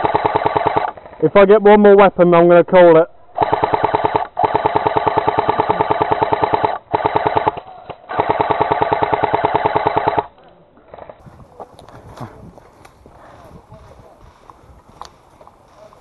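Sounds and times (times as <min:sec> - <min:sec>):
replica machine gun bursts: 0:00.0 - 0:01.0, 0:03.4 - 0:10.3.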